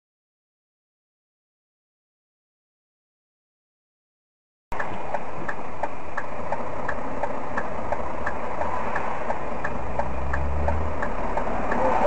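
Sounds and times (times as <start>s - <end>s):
alternating high and low ticks: 4.7s - 12.0s
vehicle engine and road noise: 4.7s - 12.0s.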